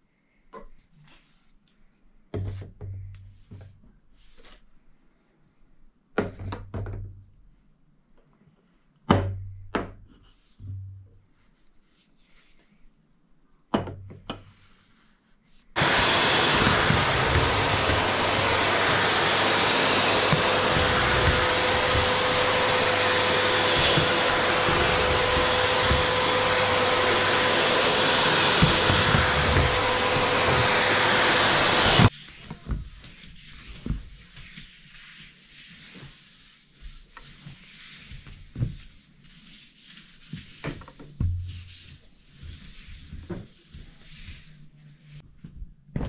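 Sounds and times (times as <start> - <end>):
stick vacuum cleaner motor whine: 15.8 - 32.1.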